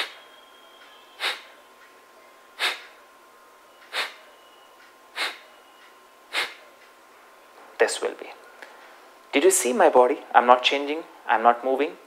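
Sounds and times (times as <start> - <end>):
forceful nasal exhalations: 1.2 - 1.5, 2.6 - 3.0, 3.9 - 4.2, 5.1 - 5.4, 6.3 - 6.6.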